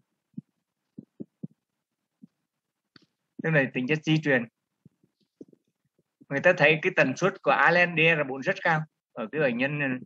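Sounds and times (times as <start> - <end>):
soft low thumps: 0.2 - 2.5.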